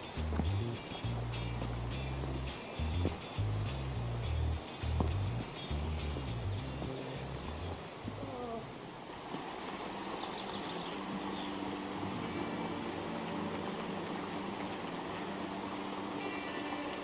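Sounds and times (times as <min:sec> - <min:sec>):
forest stream rushing: 0:00.0 - 0:17.0
low steady hum: 0:00.0 - 0:17.0.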